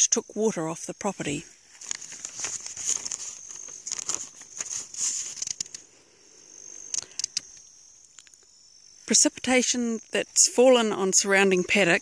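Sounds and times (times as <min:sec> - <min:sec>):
crickets trilling: 0:00.0 - 0:12.0
footsteps through grass: 0:01.4 - 0:06.1.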